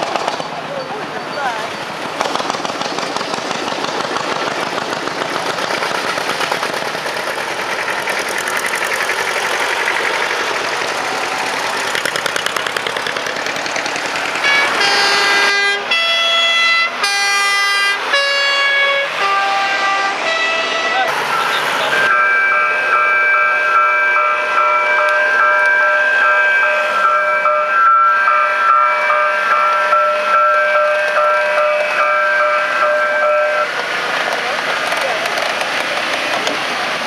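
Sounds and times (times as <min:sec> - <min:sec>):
tractor engines running: 0:00.0 - 0:37.0
horn playing short blasts: 0:14.5 - 0:21.1.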